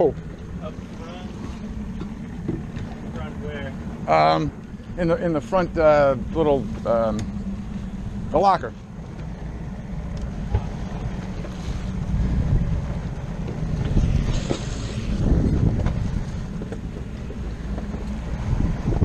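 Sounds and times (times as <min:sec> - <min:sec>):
outboard motor running: 0:00.0 - 0:19.0
water rushing past hull: 0:00.0 - 0:19.0
wind buffeting microphone: 0:00.0 - 0:19.0.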